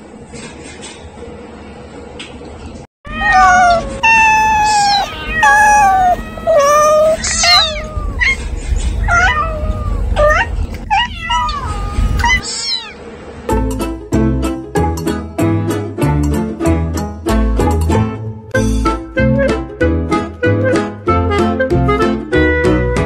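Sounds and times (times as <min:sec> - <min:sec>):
young animal high-pitched cries: 0:03.1 - 0:13.0.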